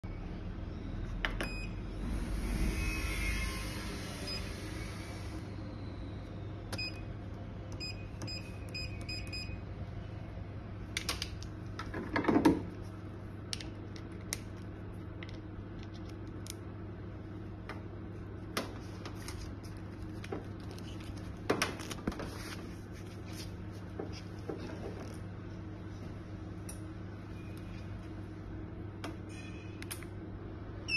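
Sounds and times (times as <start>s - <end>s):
steady electrical hum: 0.0s - 30.9s.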